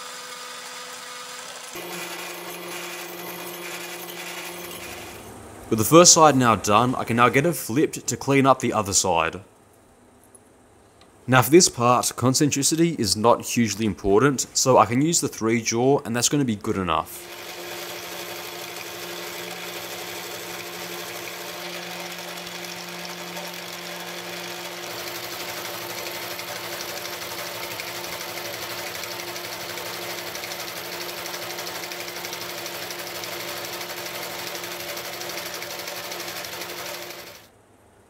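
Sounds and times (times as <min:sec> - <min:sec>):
metal lathe humming: 0:00.0 - 0:05.3, 0:17.2 - 0:37.5.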